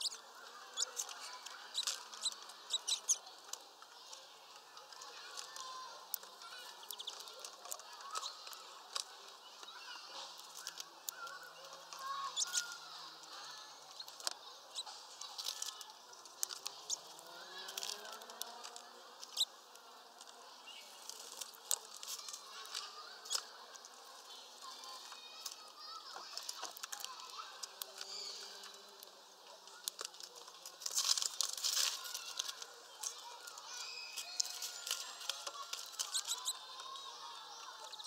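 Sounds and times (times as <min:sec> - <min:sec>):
beaks tapping at seeds: 0:00.0 - 0:03.6, 0:05.0 - 0:29.1, 0:29.7 - 0:38.0.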